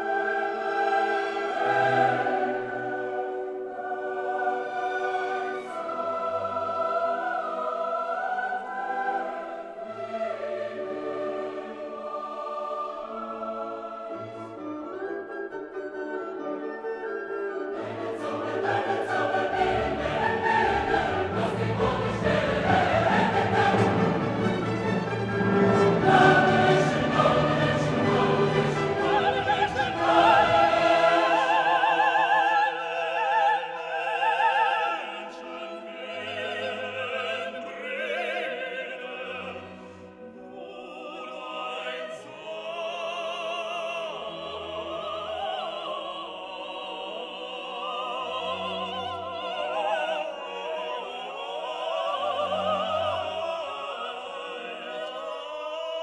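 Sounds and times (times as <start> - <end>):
orchestra playing: 8.8 - 41.1
operatic voice singing: 25.8 - 39.8.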